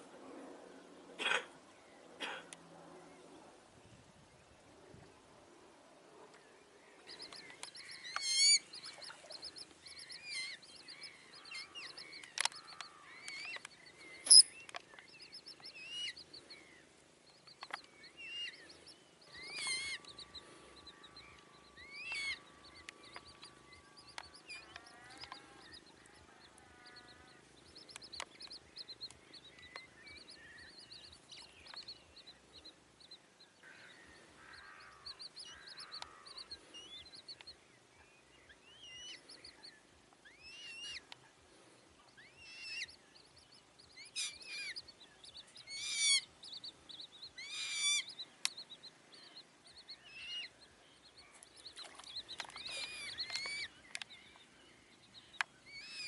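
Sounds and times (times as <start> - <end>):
coots calling: 19.4 - 20.4, 45.6 - 46.3, 47.3 - 48.2.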